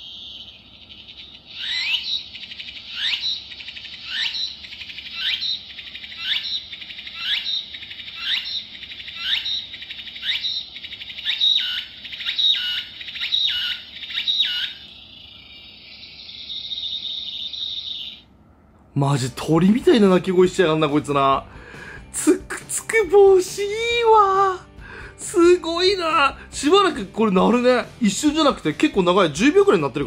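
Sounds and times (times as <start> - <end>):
recorded cicada song from speaker: 0.0 - 18.3.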